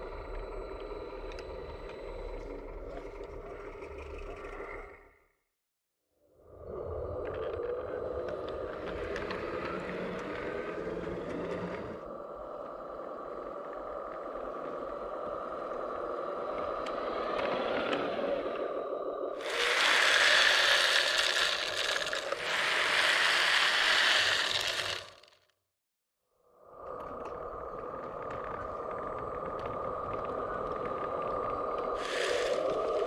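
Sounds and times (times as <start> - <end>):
model train motor whine: 19.4 - 25.4, 32.0 - 33.0
wheels rattling over rails: 19.4 - 25.4, 28.2 - 33.0.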